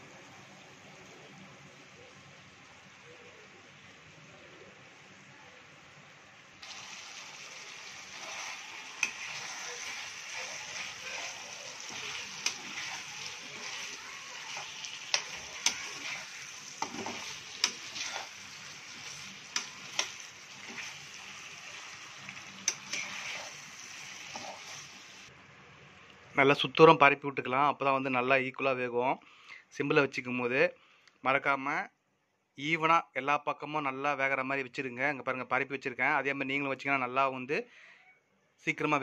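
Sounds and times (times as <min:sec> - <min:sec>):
food sizzling in oil: 0:06.6 - 0:25.3
metal spatula scraping pan: 0:07.6 - 0:25.2.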